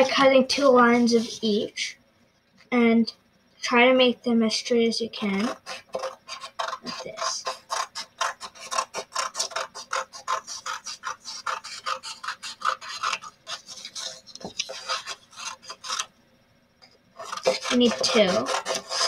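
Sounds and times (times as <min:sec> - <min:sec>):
scissors snipping paper: 0:05.4 - 0:16.1, 0:17.2 - 0:19.0.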